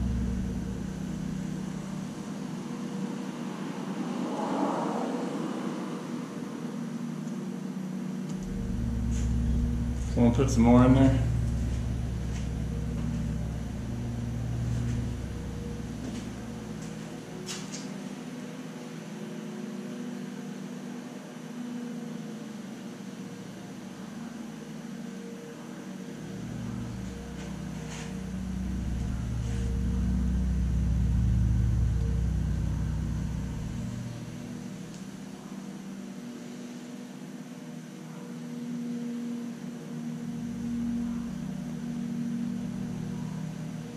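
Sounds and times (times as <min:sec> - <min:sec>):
deep rumble: 0:00.0 - 0:02.6, 0:08.3 - 0:17.8, 0:26.2 - 0:35.5, 0:40.2 - 0:43.9
steady low hum: 0:00.0 - 0:04.2, 0:06.2 - 0:19.7, 0:22.2 - 0:43.9.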